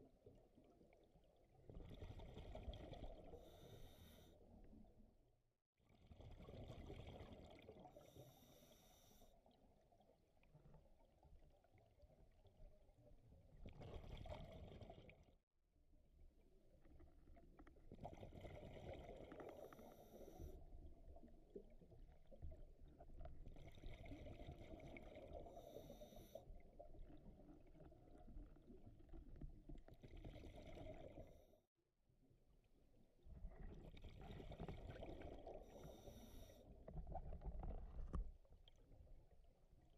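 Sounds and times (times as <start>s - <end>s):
regulator inhale hiss: 3.4s - 4.4s, 35.7s - 36.6s.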